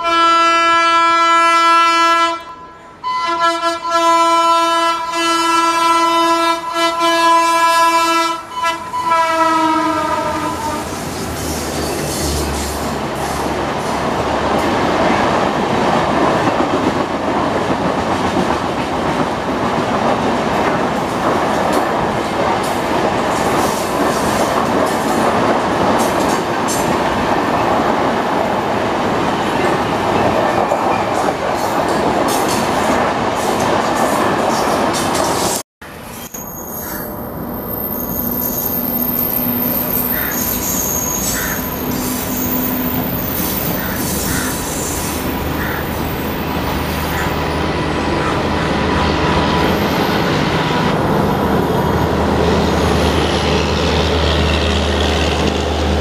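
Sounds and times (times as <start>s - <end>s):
diesel locomotive engine hum: 5.1s - 56.0s
train wheels clattering over rail joints: 30.5s - 35.6s
high wheel squeal: 35.9s - 53.4s.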